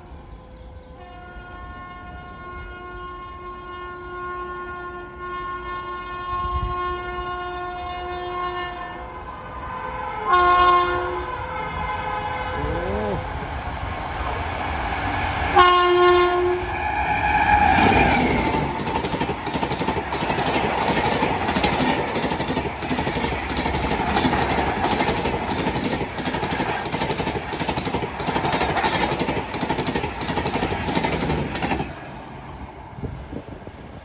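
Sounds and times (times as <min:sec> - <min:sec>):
two-tone train horn: 0:00.6 - 0:13.3, 0:15.6 - 0:18.5
train wheels clattering: 0:17.5 - 0:32.0.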